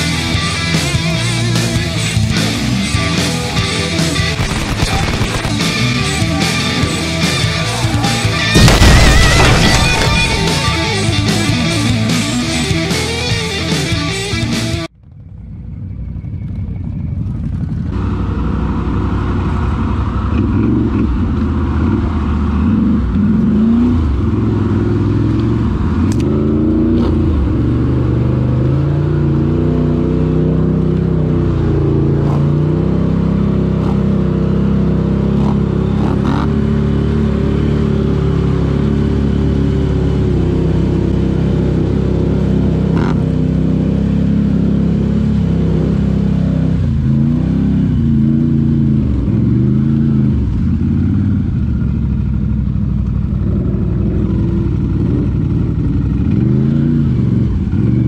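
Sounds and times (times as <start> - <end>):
quad engine revving under load: 18.0 - 51.5.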